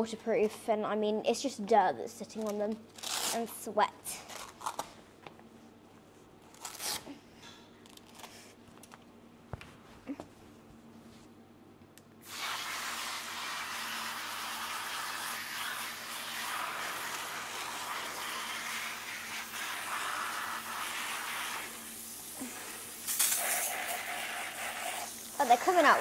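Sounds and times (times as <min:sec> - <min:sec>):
hose spray hissing: 0:12.2 - 0:26.0.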